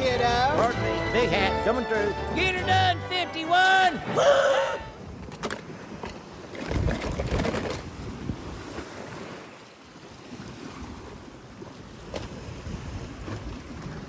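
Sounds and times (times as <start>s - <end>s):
surf washing against rocks: 3.8s - 14.0s
wind rumble on microphone: 4.0s - 9.5s, 10.3s - 14.0s.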